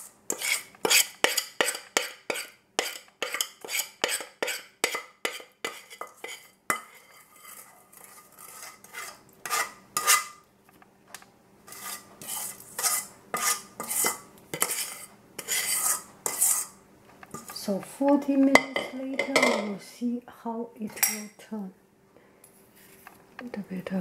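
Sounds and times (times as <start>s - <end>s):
metal spoon scraping a saucepan: 0.0s - 10.4s, 11.7s - 17.6s.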